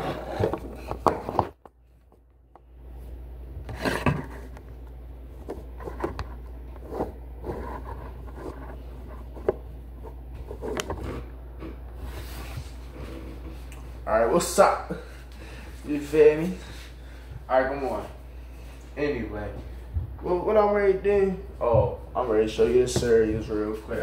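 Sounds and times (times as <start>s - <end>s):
phone handling rubbing and scraping: 0.0s - 2.2s, 3.6s - 13.7s
low steady hum: 0.0s - 24.0s.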